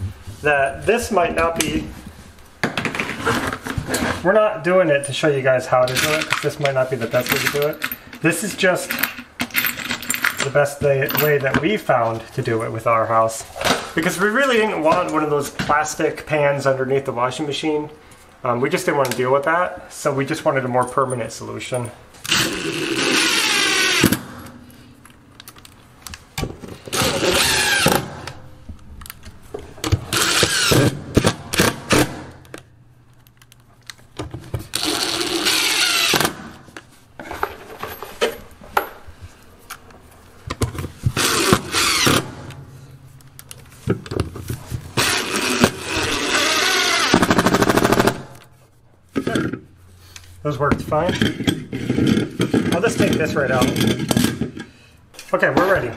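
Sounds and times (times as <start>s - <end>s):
impact driver hammering screws: 26.9s - 28.2s, 30.1s - 32.3s, 34.8s - 36.5s, 41.2s - 42.4s, 45.0s - 48.2s.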